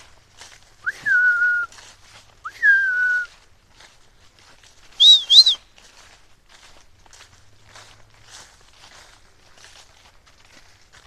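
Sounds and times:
person whistling: 0.8 - 1.7, 2.4 - 3.3, 5.0 - 5.6.

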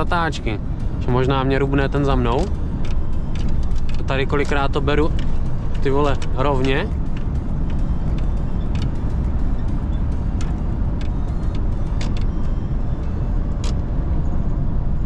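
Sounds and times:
diesel engine drone: 0.0 - 15.0
light clicks and rattles: 2.1 - 12.6.

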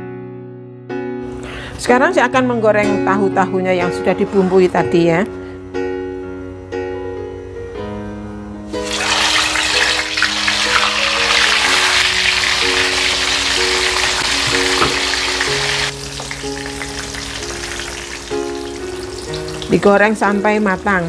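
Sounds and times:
guitar music: 8.6 - 21.0
tofu sizzling in hot oil: 8.7 - 19.9.

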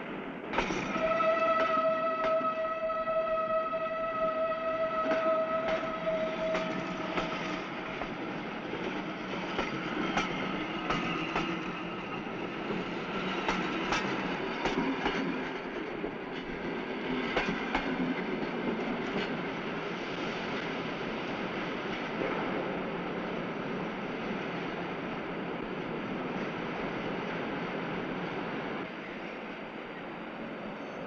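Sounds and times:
hubbub of trains and people: 0.0 - 31.0.

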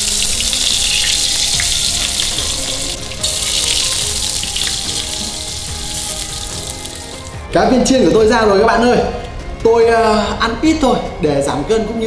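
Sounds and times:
food sizzling in hot oil: 0.0 - 7.5.

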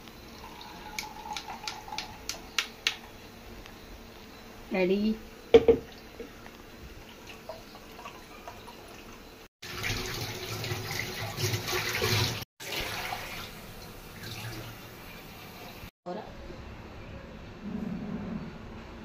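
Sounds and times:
juice pouring into a glass: 0.2 - 2.4.

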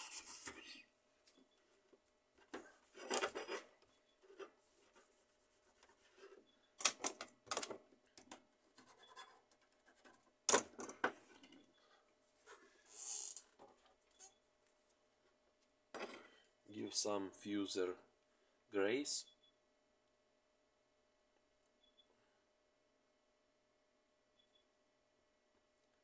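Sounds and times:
scraping and rubbing on printer parts: 0.0 - 0.8, 2.4 - 6.6.

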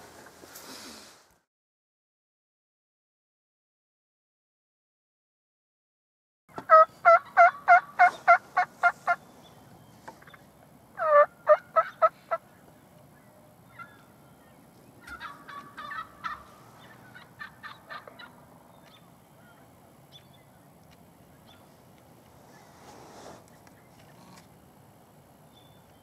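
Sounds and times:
turkey gobbling: 6.5 - 9.2, 11.0 - 12.5, 13.7 - 14.0, 15.0 - 19.0
faint turkey calls: 6.5 - 20.5.

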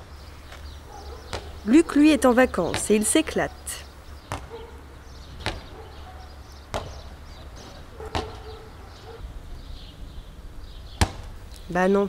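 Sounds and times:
sharp knocks: 6.7 - 7.1, 11.0 - 11.4.

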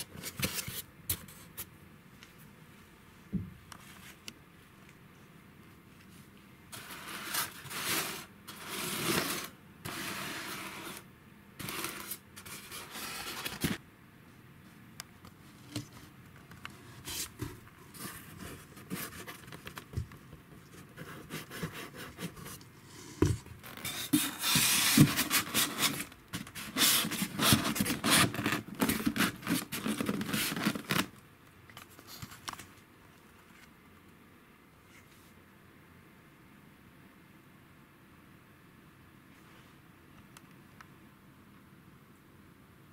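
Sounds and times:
dense scratching: 6.7 - 13.8
foam and cardboard scraping: 6.7 - 13.8, 20.8 - 31.1.

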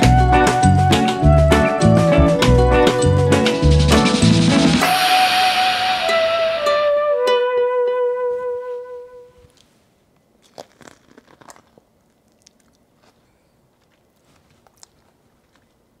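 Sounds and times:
held music note: 0.0 - 9.5
chewing clicks: 10.4 - 15.8
crisp crunches of biting corn: 10.4 - 15.8.

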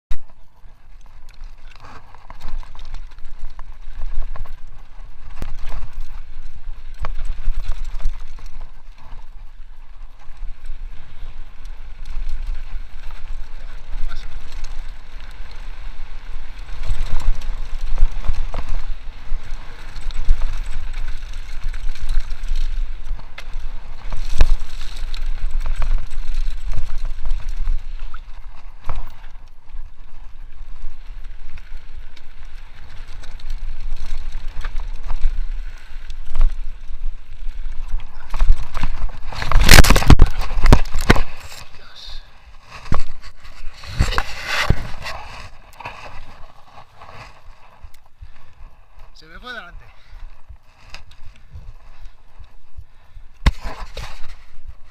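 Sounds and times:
bike knocking and rattling: 0.1 - 54.9
wind on camera: 0.1 - 54.9
tyres rumbling on gravel: 0.2 - 48.5.

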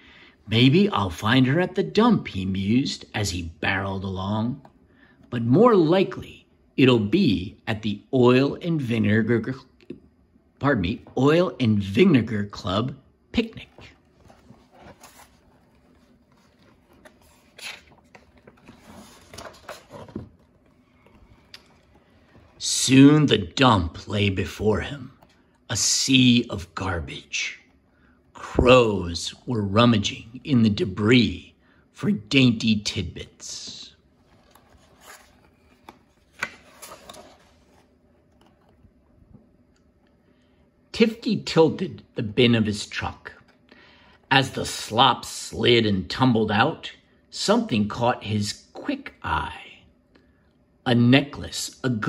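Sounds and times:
book page turning: 13.4 - 26.0, 33.7 - 40.1
page tapping: 34.3 - 39.4.

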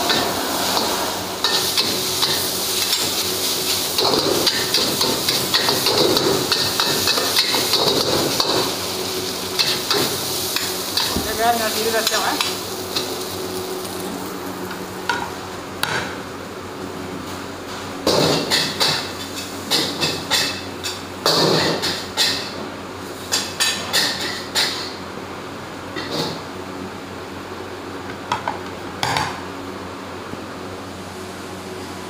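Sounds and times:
rice sizzling in a wok: 0.0 - 16.0, 18.1 - 25.0.

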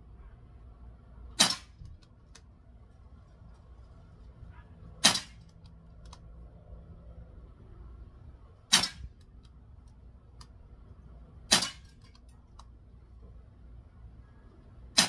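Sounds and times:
air pistol shots: 1.4 - 1.8, 5.0 - 5.5, 8.7 - 9.2, 11.5 - 12.0.

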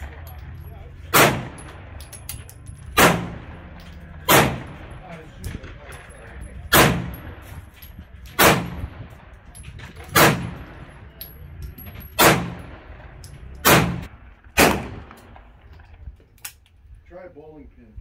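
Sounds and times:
handgun shots: 1.1 - 2.4, 3.0 - 3.4, 4.2 - 4.7, 9.9 - 10.6, 12.2 - 12.7, 13.6 - 15.2.

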